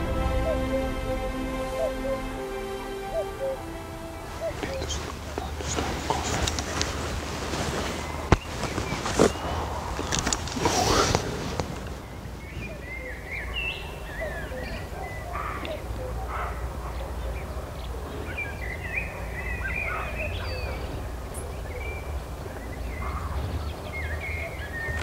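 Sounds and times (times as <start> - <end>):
low steady rumble: 0.0 - 8.8
birds chirping and warbling: 3.1 - 25.0.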